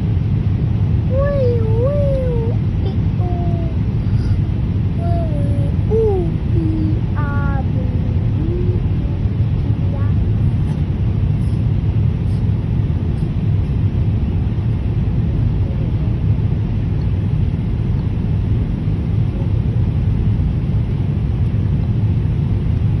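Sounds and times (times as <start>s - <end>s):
airliner cabin engine rumble: 0.0s - 23.0s.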